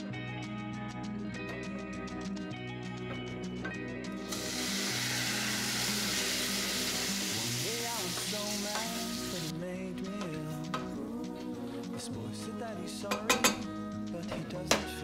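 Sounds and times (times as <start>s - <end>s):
soft background music: 0.0s - 15.0s
shrimp sizzling in butter: 4.2s - 9.5s.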